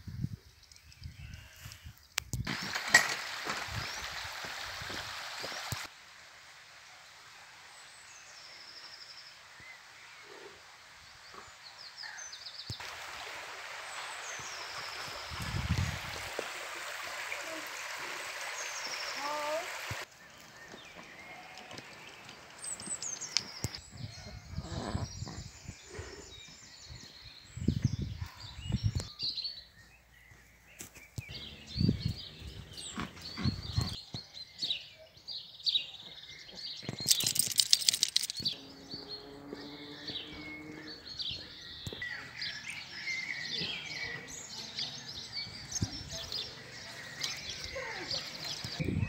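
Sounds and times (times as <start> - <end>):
songbirds chirping: 13.6 - 49.0
harsh rattle: 37.0 - 38.5.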